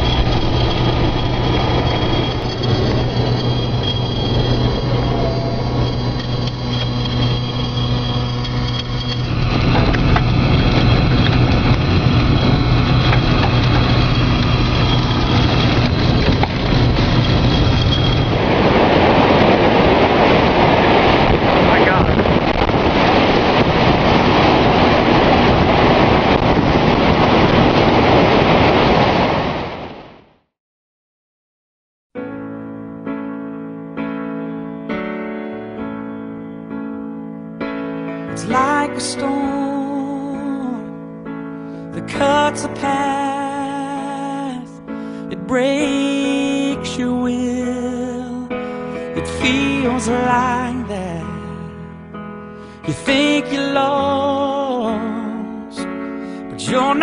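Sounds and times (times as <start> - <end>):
steady low hum: 0.0 - 28.1
wind and rain rushing against car: 0.0 - 30.3.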